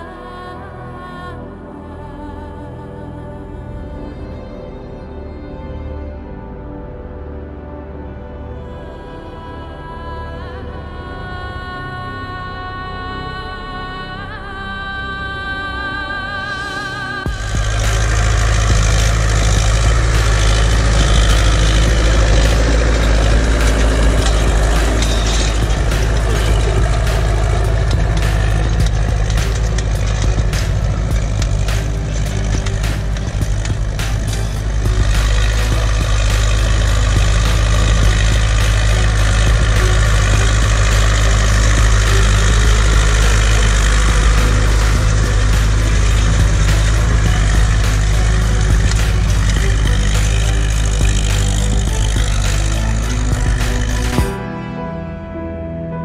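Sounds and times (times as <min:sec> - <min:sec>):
tractor diesel engine running: 0:15.3 - 0:54.6.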